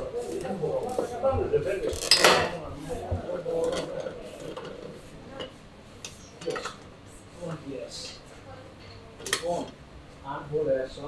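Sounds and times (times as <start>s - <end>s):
faint voices: 0.0s - 11.0s
metal tools clattering: 1.8s - 2.6s.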